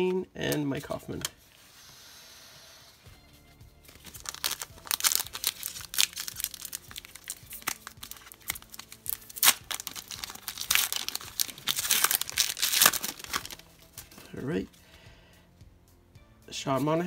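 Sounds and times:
foil wrapper tearing and crinkling: 3.9 - 13.8.

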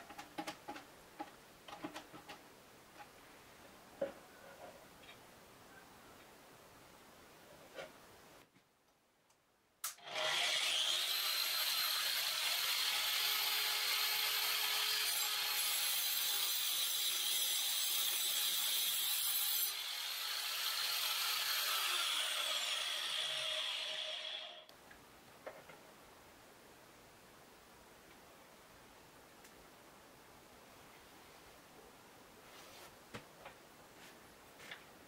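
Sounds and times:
angle grinder whining: 10.0 - 15.2
saw blade cutting wood: 10.0 - 24.7.

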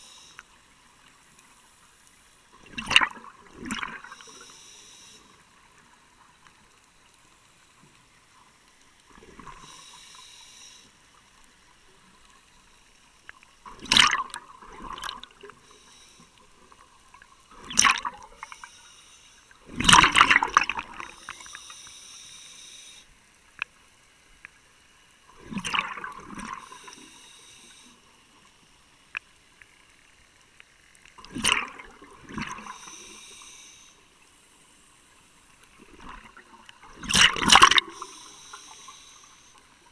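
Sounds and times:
regulator air hiss: 0.0 - 0.6, 4.1 - 5.6, 9.5 - 11.2, 15.4 - 16.7, 18.3 - 19.6, 21.1 - 23.1, 26.6 - 28.4, 32.6 - 35.2, 37.8 - 39.8
bubbles gurgling underwater: 2.6 - 4.1, 13.7 - 15.5, 17.5 - 18.4, 19.7 - 21.1, 25.4 - 26.7, 31.2 - 32.7, 35.8 - 38.0.

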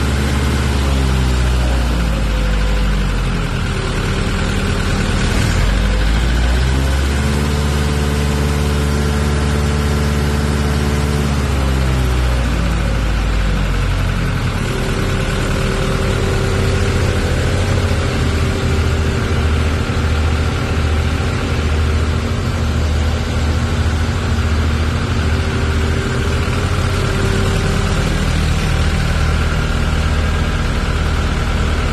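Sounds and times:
tractor diesel engine idling: 0.0 - 31.9.

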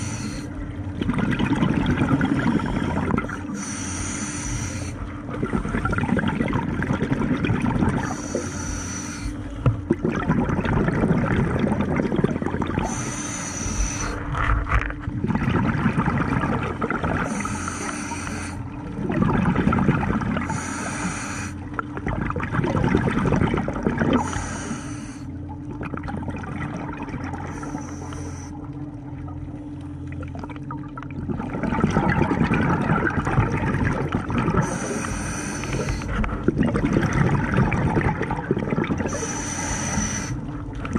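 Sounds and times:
regulator inhale hiss: 0.0 - 0.5, 3.5 - 5.1, 8.0 - 9.6, 12.8 - 14.2, 17.3 - 18.6, 20.4 - 21.6, 24.2 - 25.3, 27.5 - 28.6, 34.6 - 36.3, 39.1 - 40.4
exhaled bubbles burbling: 0.0 - 40.9.

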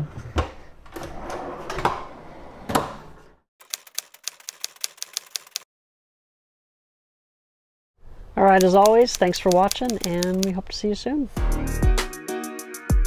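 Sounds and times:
drawer slides rolling out: 0.9 - 3.4
quick even clicks: 3.6 - 5.6, 8.5 - 10.5.

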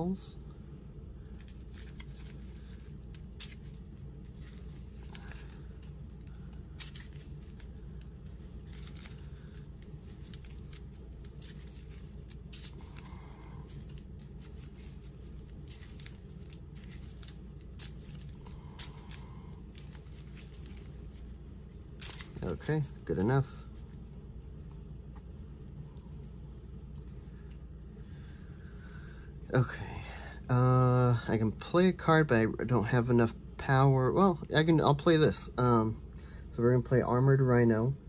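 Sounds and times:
low hum: 0.0 - 38.0
cards sliding: 1.4 - 21.4, 22.0 - 23.9.

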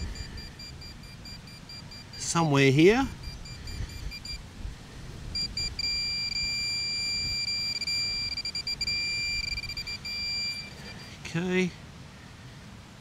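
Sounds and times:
pinpointer beeping: 0.0 - 4.4, 5.4 - 11.1.

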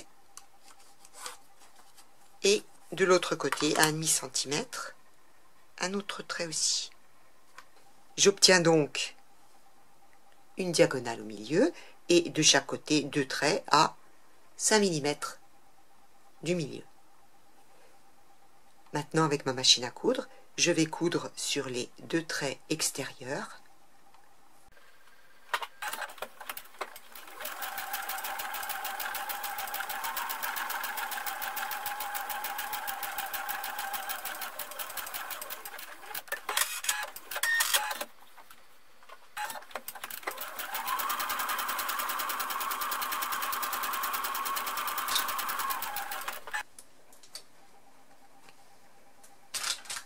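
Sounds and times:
electric sewing machine stitching: 25.8 - 38.0, 39.4 - 46.6.

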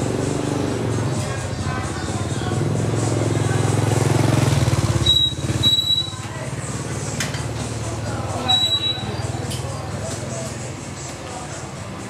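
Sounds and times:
motorbike engine running: 0.0 - 10.0
street chatter: 0.0 - 12.0.

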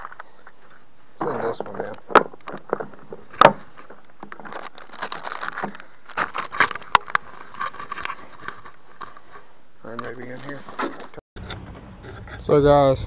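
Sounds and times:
rummaging in tackle bag: 2.9 - 9.5.

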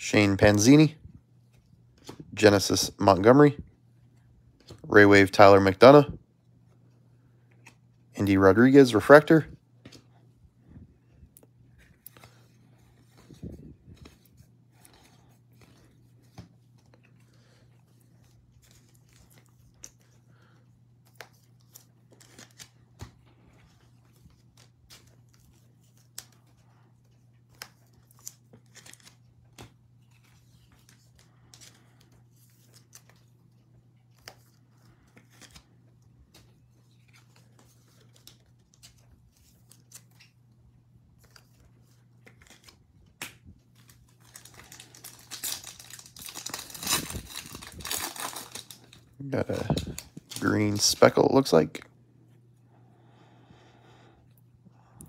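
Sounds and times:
foil card packs rustling: 11.4 - 40.5, 41.1 - 51.7.

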